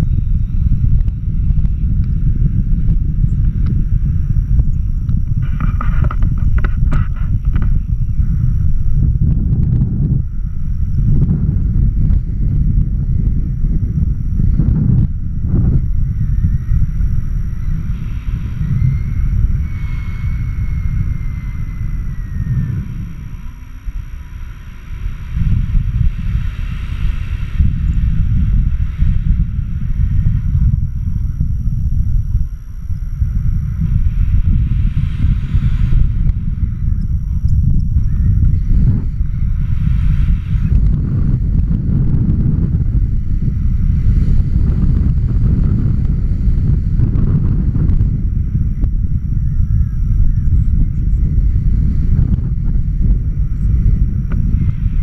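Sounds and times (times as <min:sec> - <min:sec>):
wind buffeting microphone: 0:00.0 - 0:55.0
faint high whistle: 0:17.4 - 0:24.8.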